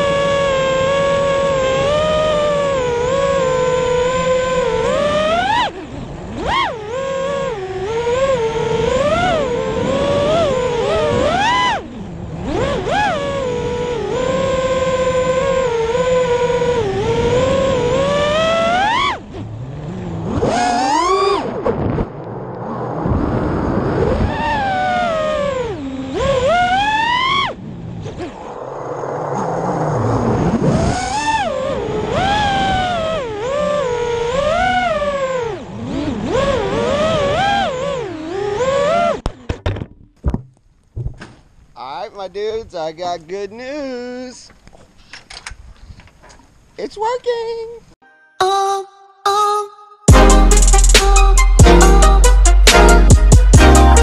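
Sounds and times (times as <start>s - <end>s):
quadcopter motors whining: 0.0s - 39.6s
rushing noise: 28.2s - 31.2s.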